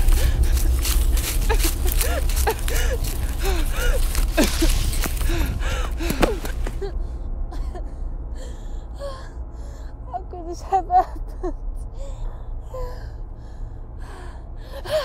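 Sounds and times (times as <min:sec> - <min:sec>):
leaves and branches crackling: 0:00.0 - 0:06.9
woman gasping and panting: 0:00.0 - 0:10.0, 0:14.0 - 0:15.0
low rumble: 0:00.0 - 0:15.0.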